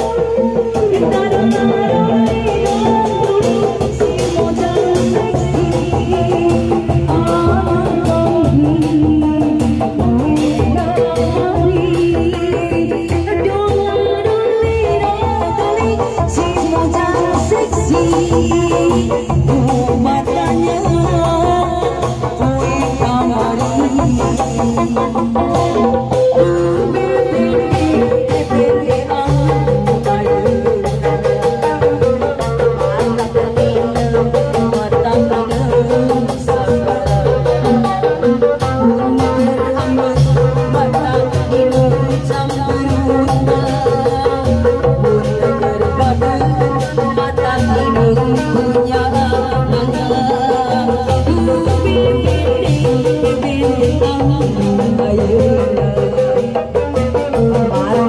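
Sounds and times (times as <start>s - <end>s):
sliding melody line: 0.0s - 8.9s, 16.3s - 42.8s
bright percussion beat: 0.0s - 58.0s.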